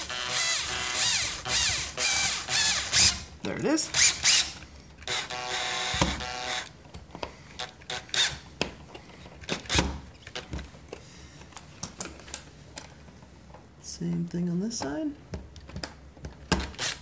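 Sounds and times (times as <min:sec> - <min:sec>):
cordless drill running: 0:00.0 - 0:03.3, 0:03.9 - 0:06.7, 0:16.8 - 0:17.0.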